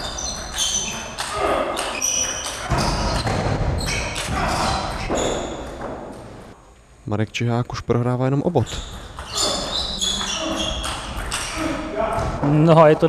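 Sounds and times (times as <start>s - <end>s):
short high squeaks: 0.0s - 1.1s, 8.6s - 11.8s.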